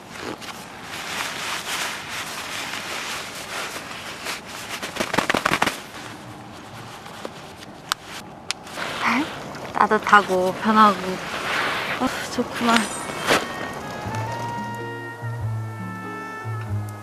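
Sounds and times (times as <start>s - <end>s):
nylon jacket rustling: 0.0s - 15.4s
crackling clicks: 3.5s - 6.2s, 10.6s - 15.2s.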